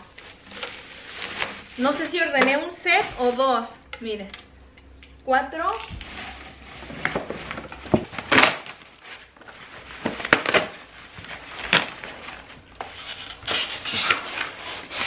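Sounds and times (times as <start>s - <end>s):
packing material rustling: 0.0s - 2.2s, 5.8s - 15.0s.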